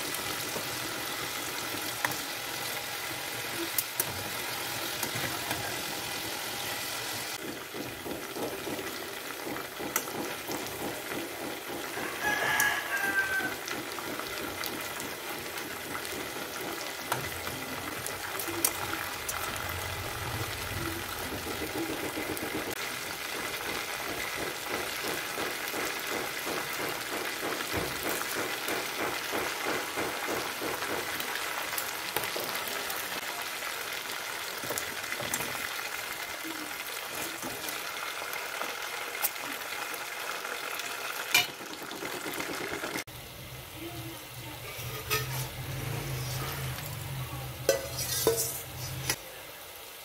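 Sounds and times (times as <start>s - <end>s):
meat sizzling in oil: 0.0s - 50.0s
metal tongs clacking: 47.6s - 49.2s.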